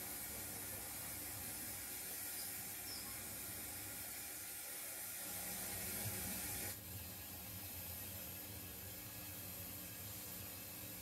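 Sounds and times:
model steam locomotive hissing: 0.0s - 6.8s.

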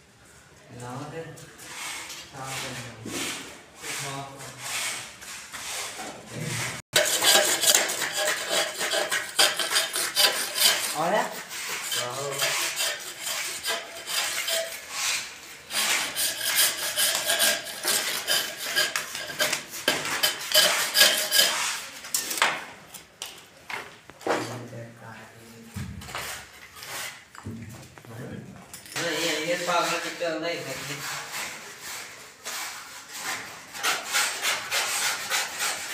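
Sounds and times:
hand tool rasping gypsum board: 6.6s - 22.0s, 29.0s - 35.9s.

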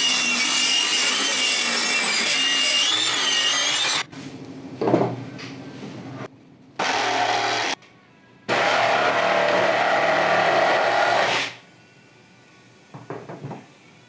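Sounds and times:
circular saw cutting wood: 0.0s - 4.1s, 8.5s - 11.6s.

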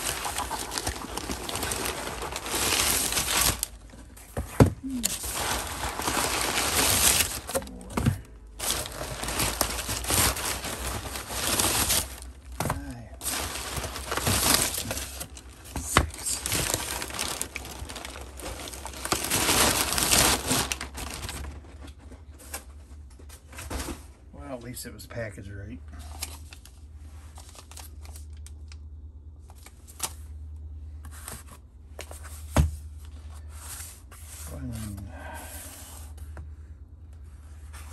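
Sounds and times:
packing paper rustling: 0.0s - 22.6s, 26.0s - 28.6s.

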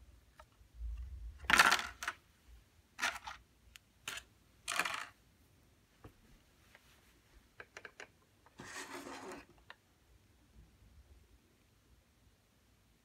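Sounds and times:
plastic clicks: 7.6s - 8.2s.

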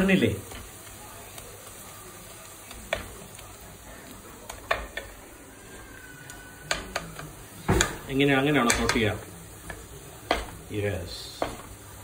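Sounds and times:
onions sizzling in oil: 0.0s - 12.0s
spatula knocking against pot: 6.7s - 9.1s, 9.7s - 10.6s, 11.3s - 11.7s.

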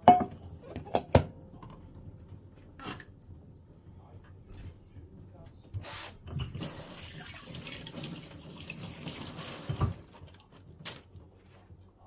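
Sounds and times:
tap water running into sink: 6.4s - 10.1s.

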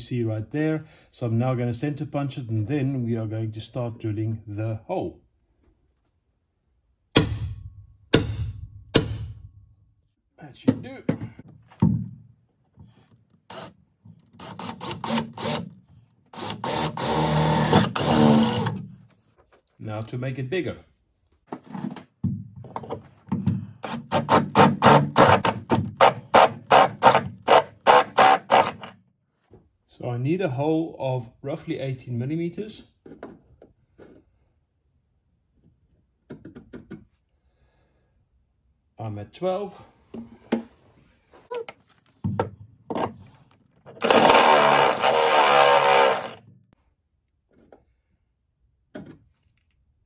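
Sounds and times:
cordless drill cutting sheet metal: 13.5s - 15.8s, 16.4s - 18.8s, 23.8s - 28.9s, 44.0s - 46.4s.

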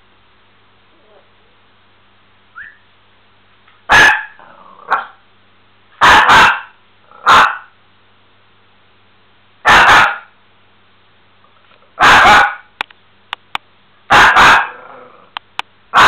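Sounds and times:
dog barking sharply: 3.9s - 5.2s, 6.0s - 7.7s, 9.6s - 10.3s, 12.0s - 12.7s, 14.1s - 14.8s.

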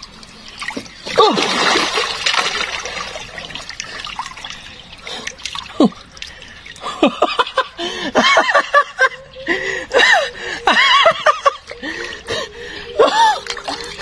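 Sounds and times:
water splashing and dripping: 0.0s - 8.0s, 10.8s - 14.0s
man laughing excitedly: 7.0s - 11.8s.

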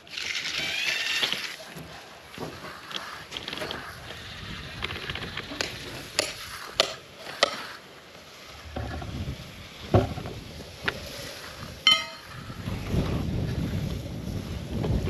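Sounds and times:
wind buffeting microphone: 8.6s - 15.0s
metallic clang: 11.9s - 12.3s.

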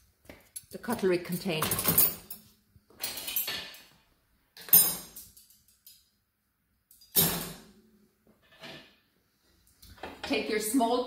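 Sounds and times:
dishes and cutlery clinking: 0.5s - 3.9s.

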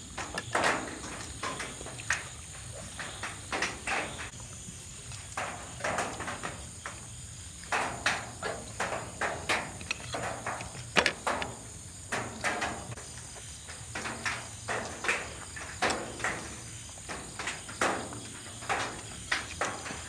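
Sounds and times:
crickets chirping: 0.0s - 20.0s
chewing and mouth noises: 0.3s - 7.8s.

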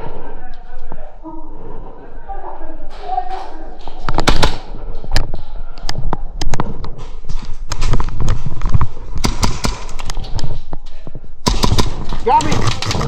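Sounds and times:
airsoft gunfire: 4.2s - 4.7s, 9.2s - 10.1s, 11.4s - 13.0s.

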